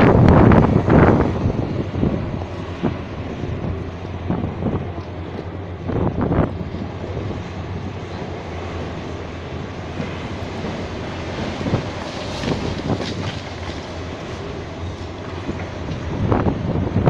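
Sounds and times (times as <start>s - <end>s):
excavator running: 0.0s - 17.0s.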